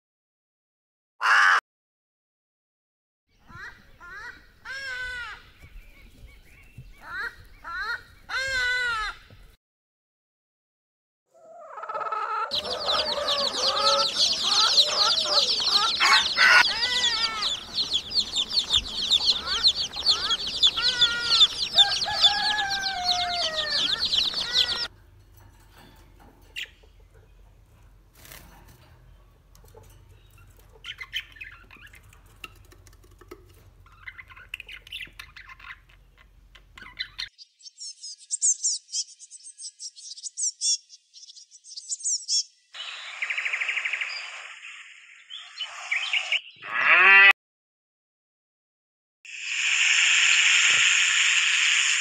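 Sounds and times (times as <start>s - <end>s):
chicks peeping: 11.4s - 24.9s, 29.2s - 37.4s
low clucking calls: 11.4s - 24.9s.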